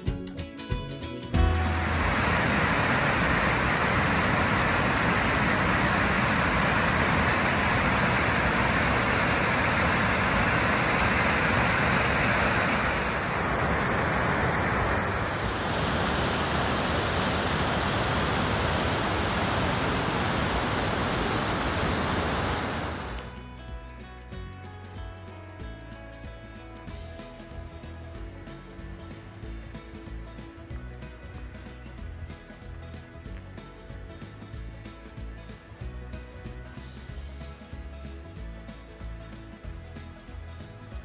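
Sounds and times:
waterfall rushing: 1.4 - 23.4.

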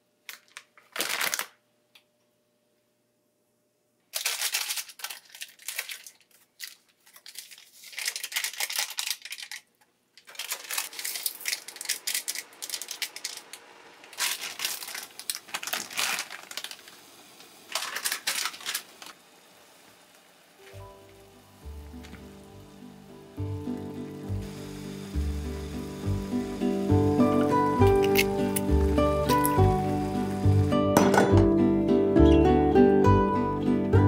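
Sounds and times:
plastic packaging crinkling and tearing: 0.3 - 1.6, 4.1 - 20.4, 25.6 - 30.4
faint steady hiss: 9.8 - 33.6.

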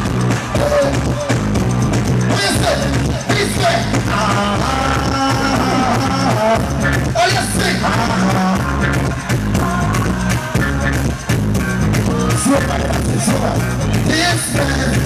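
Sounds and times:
loud soca music with bass beat: 0.0 - 15.0
person singing into a microphone: 2.2 - 11.3, 12.1 - 15.0.

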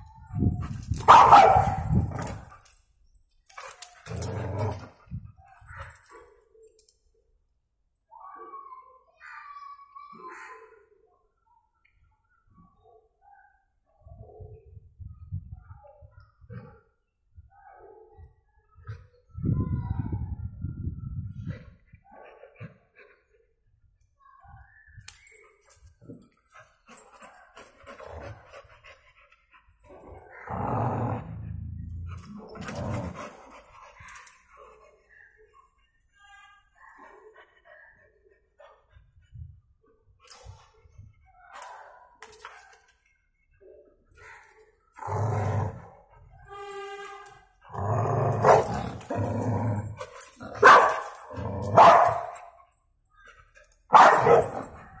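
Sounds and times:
dog barking sharply: 1.1 - 1.8, 50.6 - 51.0, 51.8 - 52.3, 53.9 - 54.6
dog growling: 30.0 - 33.4, 47.7 - 50.6.

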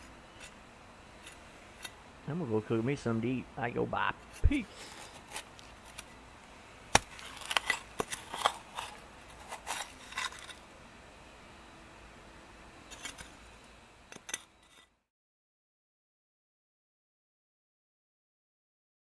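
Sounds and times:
metal shovel scraping gritty soil: 4.2 - 6.1, 7.0 - 10.6, 12.9 - 13.4, 14.1 - 14.9.

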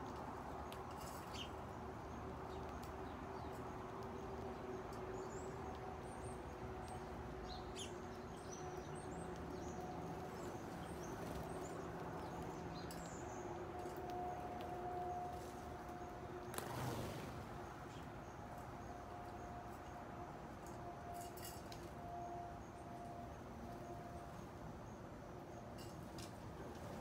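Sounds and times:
sparrows chirping: 0.5 - 14.7.

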